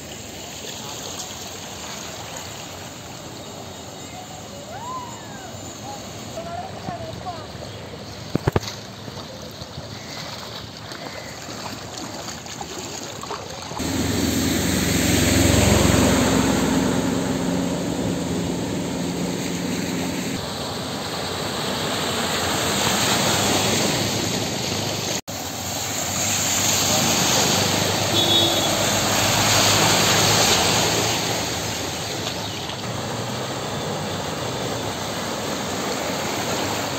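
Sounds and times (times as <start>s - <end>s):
water washing: 5.7s - 36.9s
vehicle engine running: 13.8s - 20.4s
truck engine running close: 13.8s - 20.5s.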